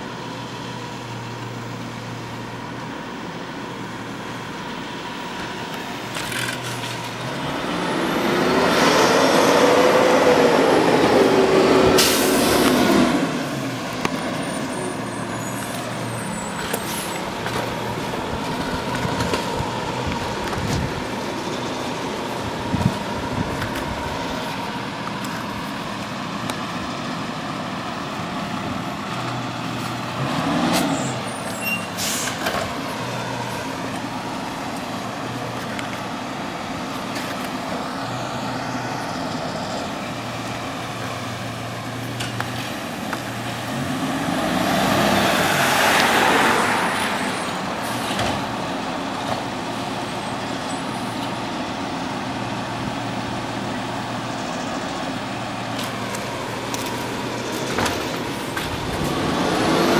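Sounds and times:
diesel truck engine running: 0:00.0 - 0:59.9
short sharp hisses and clicks: 0:12.0 - 0:12.5.

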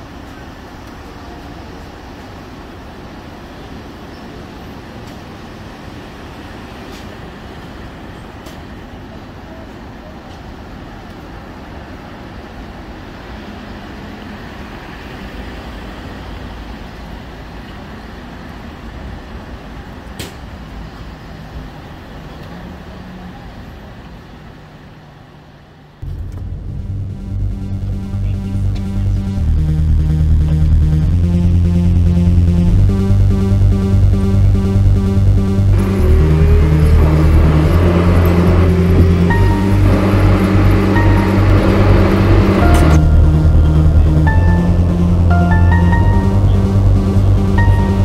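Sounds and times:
car road and tyre noise: 0:00.0 - 0:28.0.

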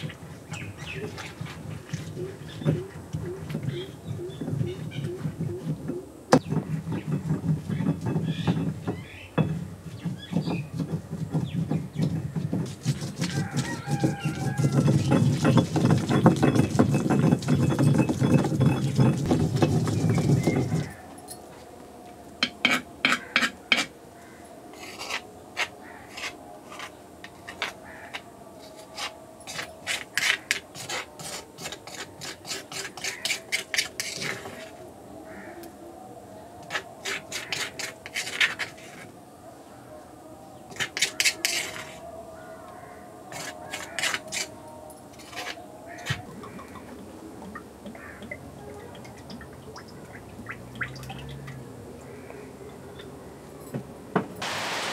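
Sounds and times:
stone pestle grinding in mortar: 0:06.4 - 0:21.0, 0:24.8 - 0:34.7, 0:36.7 - 0:39.0, 0:40.7 - 0:42.0, 0:43.3 - 0:44.5
spoon scraping paste on stone: 0:12.6 - 0:21.0, 0:22.4 - 0:23.9, 0:24.7 - 0:34.8, 0:36.6 - 0:39.1, 0:40.7 - 0:42.1, 0:43.3 - 0:44.6, 0:45.2 - 0:46.8.

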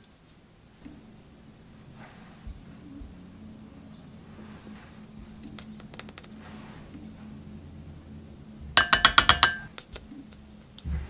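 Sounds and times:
faint clicks: 0:05.3 - 0:07.1.

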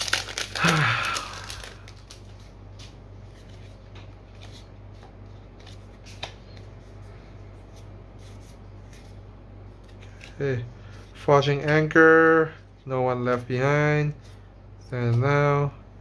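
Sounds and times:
plastic wrapper crinkling: 0:00.0 - 0:02.9
cards rustling and snapping: 0:00.0 - 0:06.7.

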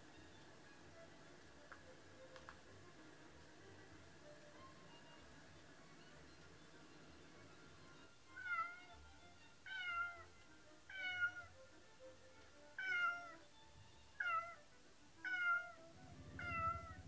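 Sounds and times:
faint background music: 0:00.0 - 0:17.0
cat meowing: 0:08.4 - 0:09.0, 0:09.6 - 0:10.3, 0:10.9 - 0:11.6, 0:12.8 - 0:13.4, 0:14.2 - 0:14.6, 0:15.2 - 0:17.0.

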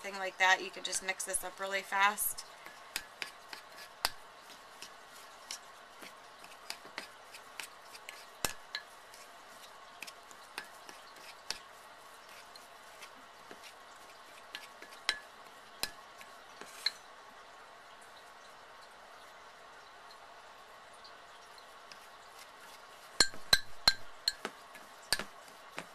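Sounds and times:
metal spoon scraping a ceramic mug: 0:16.6 - 0:17.0.

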